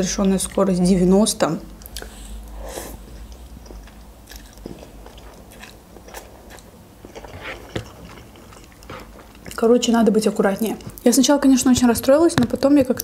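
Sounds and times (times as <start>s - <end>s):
wet chewing with mouth clicks: 1.8s - 9.7s.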